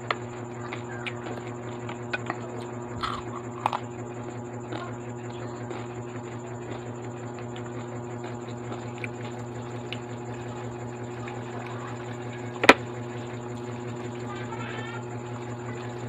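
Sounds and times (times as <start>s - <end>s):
steady low hum: 0.0s - 16.0s
chewing and mouth clicks: 0.6s - 4.0s, 4.6s - 11.8s.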